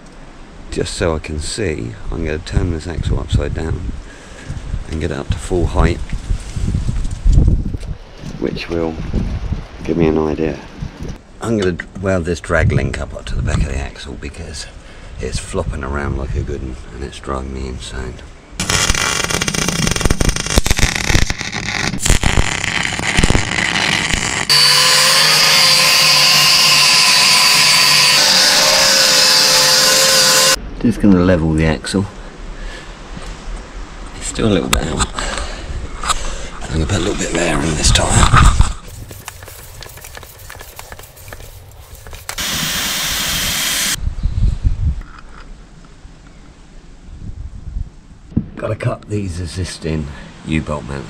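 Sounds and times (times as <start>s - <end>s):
angle grinder whining: 18.6s - 30.6s, 42.2s - 44.0s
arc welding crackling: 18.6s - 30.6s, 38.9s - 44.0s
air hissing into tyre: 38.9s - 44.0s
faint clicks and handling noise: 39.0s - 42.4s.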